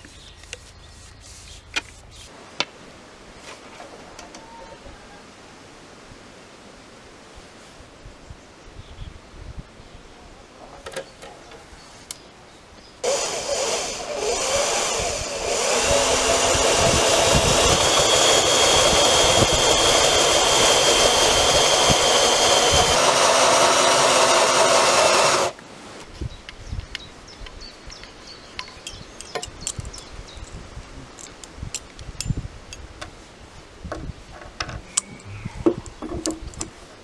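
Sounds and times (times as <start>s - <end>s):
power drill boring into wood: 13.0s - 25.6s.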